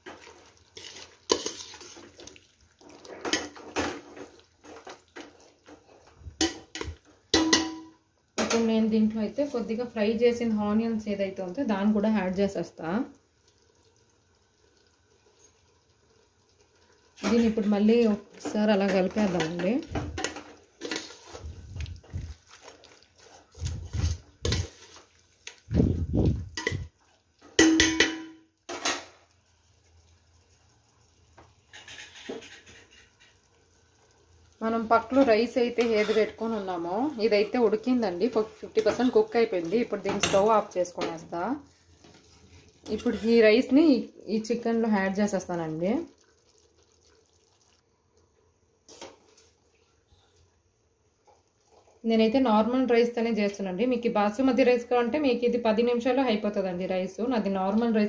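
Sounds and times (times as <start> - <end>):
spoon scraping a metal pot: 0.0 - 2.1, 19.2 - 21.5, 31.7 - 33.4, 35.1 - 37.5, 42.8 - 43.5.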